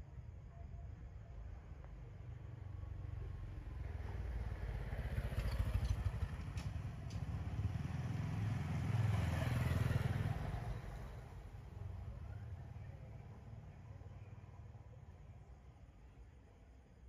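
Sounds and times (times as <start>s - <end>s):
small motorcycle engine passing: 4.2s - 11.3s.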